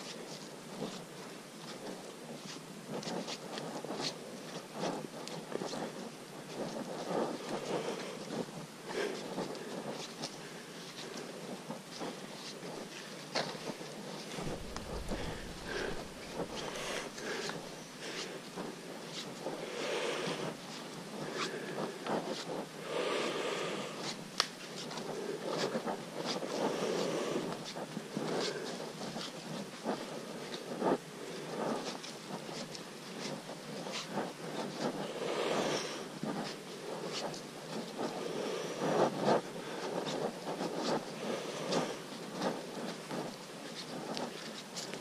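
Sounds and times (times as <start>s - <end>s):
footsteps on muddy forest trail: 14.4s - 18.4s.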